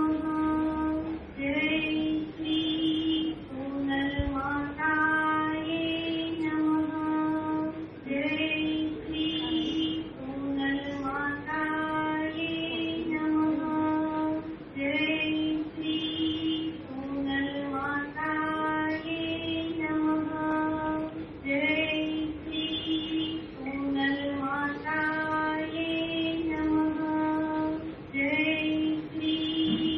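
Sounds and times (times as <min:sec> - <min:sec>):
women singing a devotional hymn: 0:00.0 - 0:29.9.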